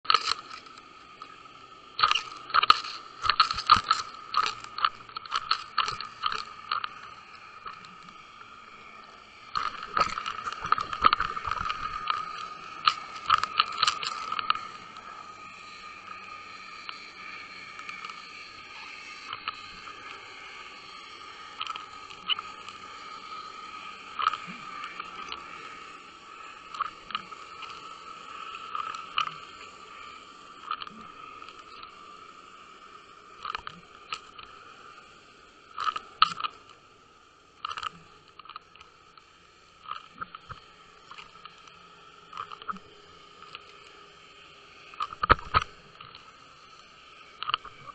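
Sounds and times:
steady thin whine: 0:00.0 - 0:47.9
muffled underwater hum and hiss: 0:00.1 - 0:47.9
sharp clicks and knocks: 0:45.0 - 0:46.2.

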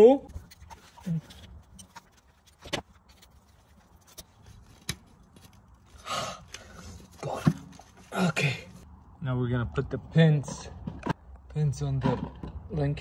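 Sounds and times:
person breathing strained: 0:05.9 - 0:07.0.

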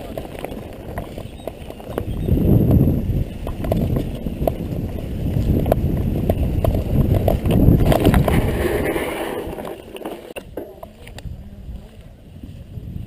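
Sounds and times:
bike rattling and knocking: 0:00.0 - 0:08.5
wind rumble on microphone: 0:00.0 - 0:13.0.

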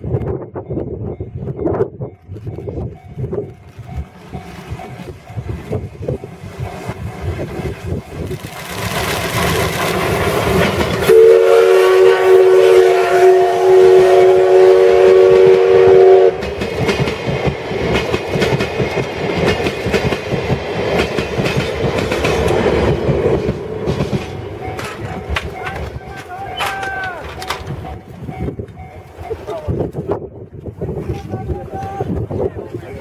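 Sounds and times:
steam locomotive running: 0:00.0 - 0:33.0
train wheels clattering on rail joints: 0:02.1 - 0:11.2, 0:16.4 - 0:30.0
steam whistle: 0:11.0 - 0:16.4.

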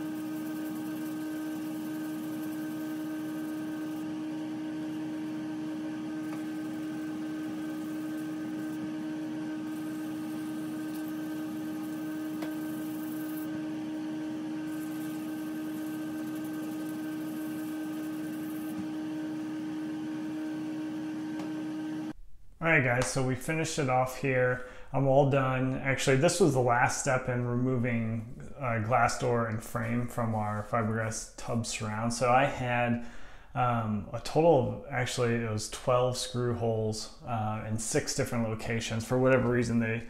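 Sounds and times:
steady machine hum: 0:00.0 - 0:22.2.

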